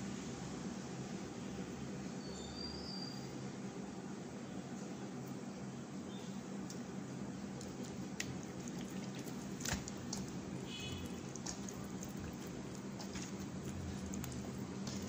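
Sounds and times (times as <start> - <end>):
steady low hum: 3.5 - 15.0
wet squelching: 7.6 - 15.0.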